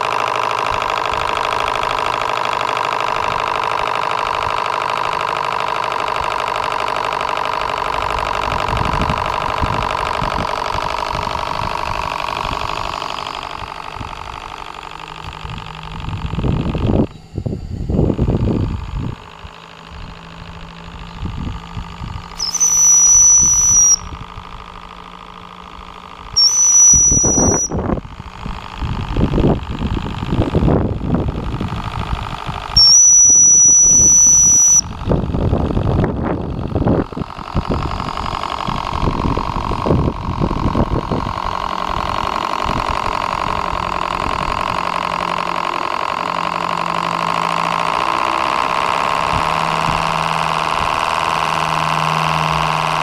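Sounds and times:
steam engine chuffing: 0.0s - 53.0s
shrill steam whistle blasts: 22.4s - 24.1s, 26.4s - 27.8s, 32.8s - 34.9s.

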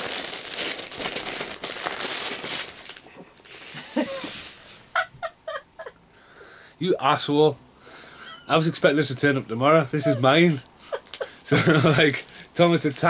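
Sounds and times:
wrapping paper tearing: 0.0s - 3.1s.

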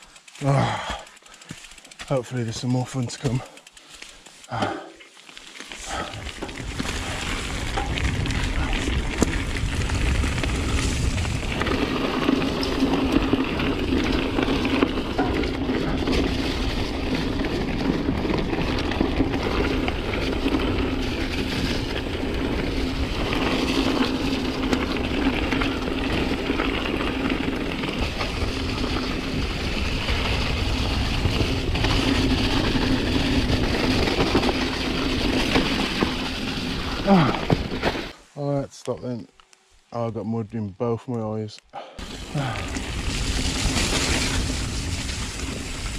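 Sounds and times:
bike rattling: 0.0s - 38.3s, 42.0s - 45.9s
bike tyres rolling on dirt: 0.0s - 45.9s
wind buffeting microphone: 6.0s - 35.7s.

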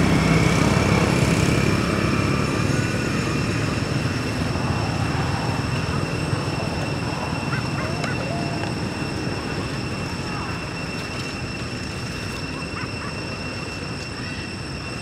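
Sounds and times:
low rumble: 0.0s - 11.3s
high-pitched tones: 4.4s - 11.5s
faint wavering call: 5.8s - 11.4s.

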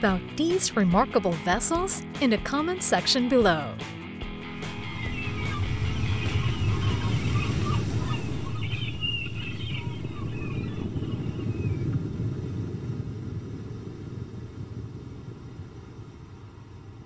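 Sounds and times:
low steady rumble: 4.5s - 17.0s
faint high chirping: 4.7s - 12.0s.

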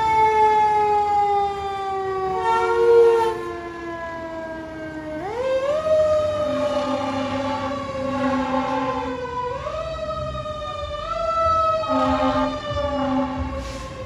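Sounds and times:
fire engine siren wailing: 0.0s - 14.0s
truck engine rumble: 0.0s - 14.0s
low horn blasts: 2.4s - 3.4s, 6.4s - 9.5s, 11.0s - 14.0s.

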